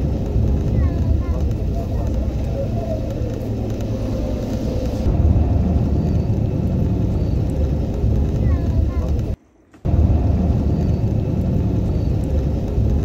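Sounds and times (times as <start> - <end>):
vehicle rumble from inside cabin: 0.0 - 13.0.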